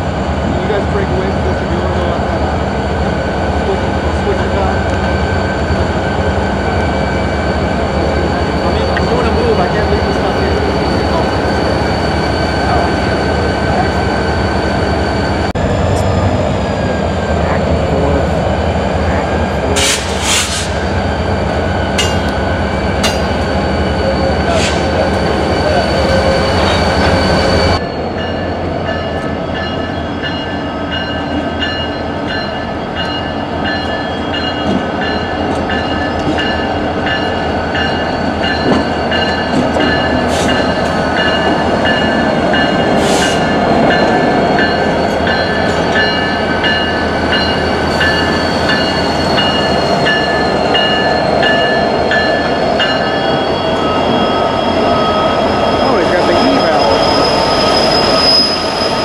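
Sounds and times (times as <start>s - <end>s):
locomotive engine rumble: 0.0s - 59.0s
metallic wheel squeal: 5.0s - 15.5s, 21.8s - 28.5s, 44.2s - 59.0s.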